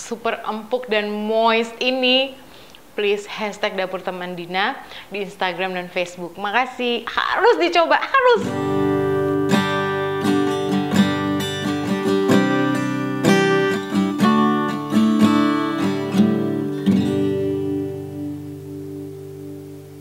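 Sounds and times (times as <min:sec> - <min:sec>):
acoustic guitar strumming: 0:08.2 - 0:20.0.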